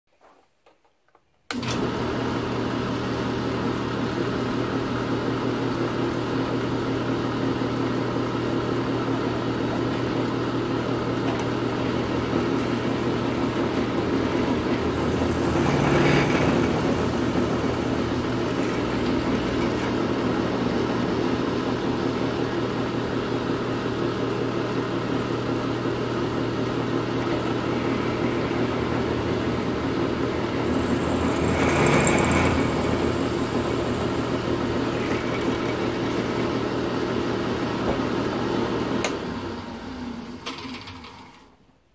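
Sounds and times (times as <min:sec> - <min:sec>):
drill press motor humming: 0:09.2 - 0:37.8
drill bit drilling workpiece: 0:11.2 - 0:21.0, 0:27.0 - 0:36.9.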